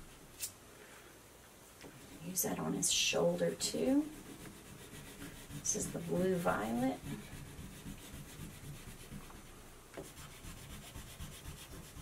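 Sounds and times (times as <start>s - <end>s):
crayon rubbing on paper: 2.0s - 12.0s.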